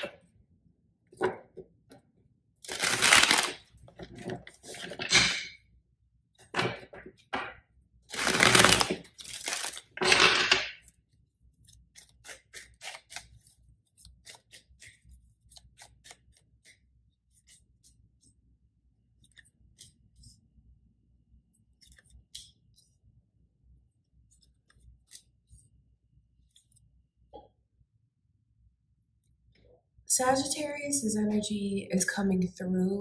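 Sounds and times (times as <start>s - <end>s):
cards shuffling: 2.7s - 5.0s.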